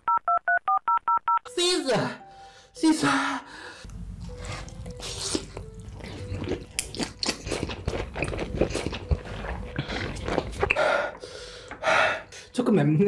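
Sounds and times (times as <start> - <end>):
person chewing noodles: 3.8 - 12.3.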